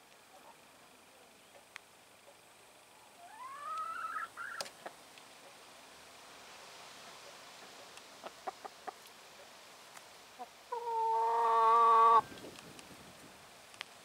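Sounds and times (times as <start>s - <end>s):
bird long held call: 3.1s - 4.7s
faint clicks: 13.7s - 14.0s.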